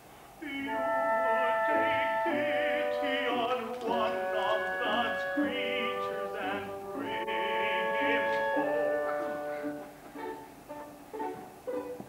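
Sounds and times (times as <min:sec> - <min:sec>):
operatic singing voice: 0:00.4 - 0:09.9
held accompaniment notes: 0:00.4 - 0:12.0.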